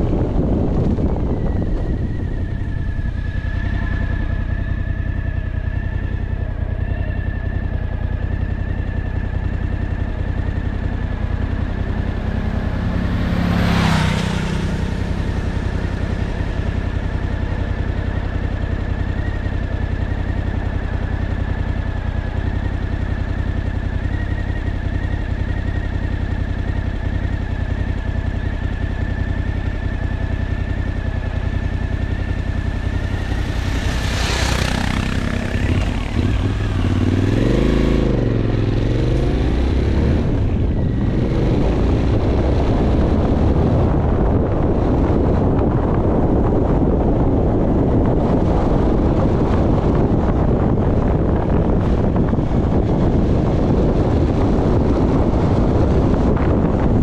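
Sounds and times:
high whine: 0.0 - 47.4
engine running steadily: 0.0 - 57.0
loud rush: 32.0 - 38.4.

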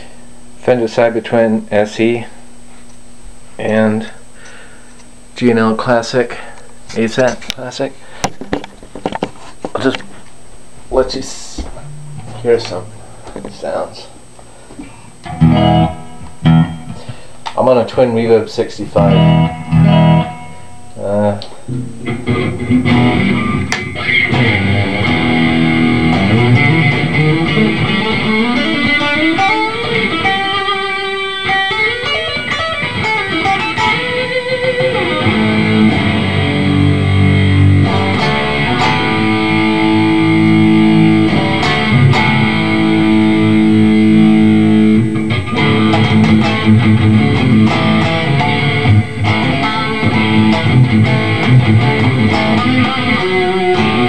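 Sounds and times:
electric guitar playing: 10.9 - 17.3, 18.2 - 54.0.

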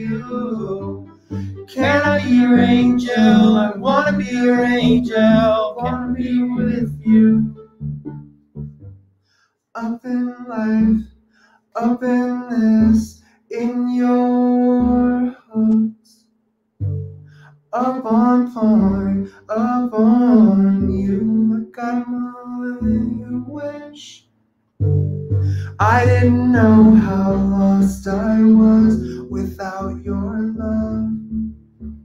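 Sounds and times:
person singing with auto-tune: 0.0 - 7.8, 9.8 - 11.1, 11.8 - 16.2, 17.8 - 24.2, 25.6 - 31.4
plucked acoustic guitar: 0.0 - 8.9, 24.8 - 29.2.

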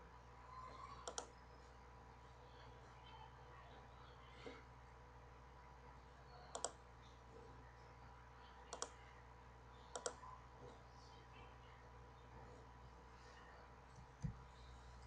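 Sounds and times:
faint steady hum: 0.0 - 15.0
computer mouse clicking: 1.0 - 1.4, 6.5 - 6.8, 8.7 - 9.1, 9.9 - 10.2.

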